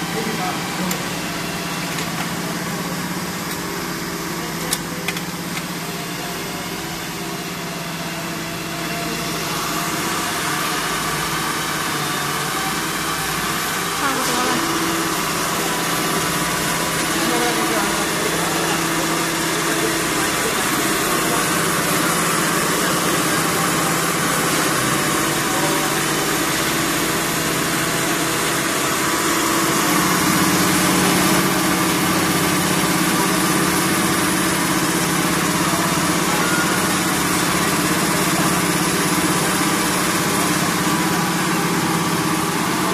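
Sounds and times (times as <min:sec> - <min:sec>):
machine motors humming: 0:00.0 - 0:42.9.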